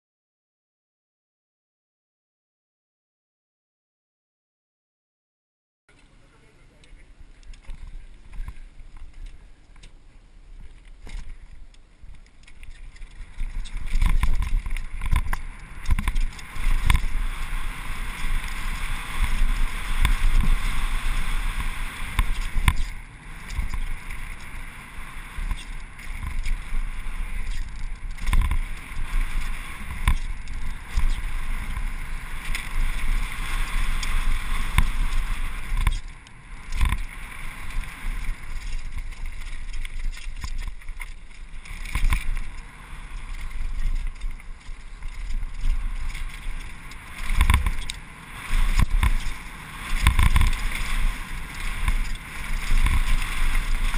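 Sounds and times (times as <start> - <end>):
wind rushing over microphone: 10.5 - 53.9
bike thumps and rattles: 10.7 - 24.5, 25.4 - 42.6, 43.3 - 53.9.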